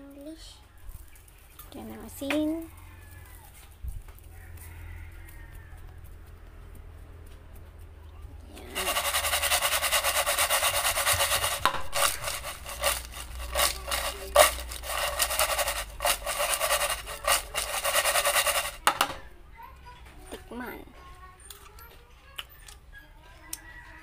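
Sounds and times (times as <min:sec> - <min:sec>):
potato sticks rustling in a bowl: 0:08.5 - 0:19.2.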